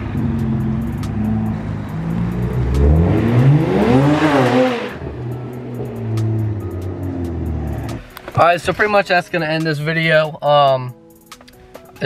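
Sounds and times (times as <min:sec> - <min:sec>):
car accelerating past: 0:00.0 - 0:08.1.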